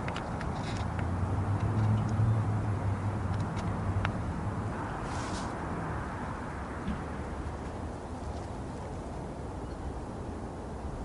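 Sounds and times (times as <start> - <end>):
vehicle engine hum: 0.0 - 11.0.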